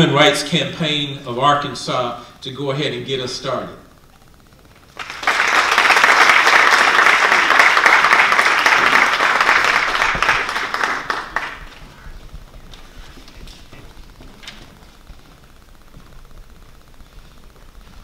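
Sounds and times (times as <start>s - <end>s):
audience applauding: 4.9s - 12.6s.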